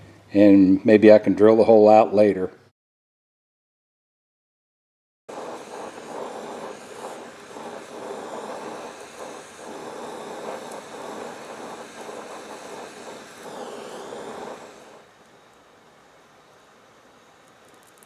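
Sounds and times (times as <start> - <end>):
gas torch flame rushing: 5.3 - 15.9.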